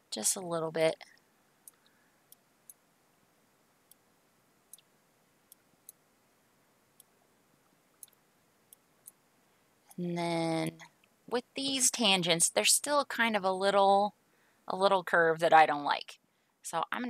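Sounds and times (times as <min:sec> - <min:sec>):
computer mouse clicks: 0:01.6 - 0:02.8, 0:08.0 - 0:09.2.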